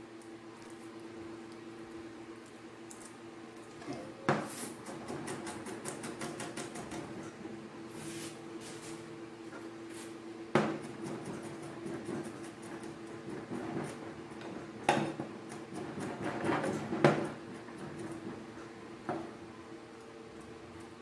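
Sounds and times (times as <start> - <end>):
steady hum: 0.0 - 21.0.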